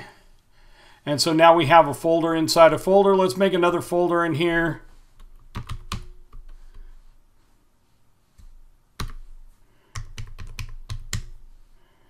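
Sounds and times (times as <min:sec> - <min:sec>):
keyboard typing: 0:05.2 - 0:06.8, 0:09.0 - 0:09.2, 0:09.9 - 0:11.4.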